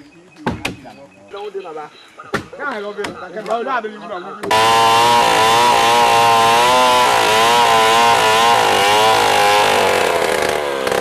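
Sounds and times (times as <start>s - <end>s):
chainsaw cutting a log: 4.5s - 11.0s.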